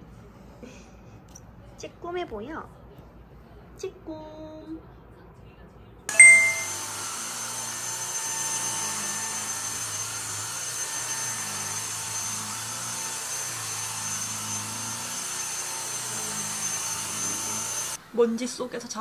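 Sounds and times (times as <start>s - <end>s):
vacuum cleaner running: 6.2s - 18.0s.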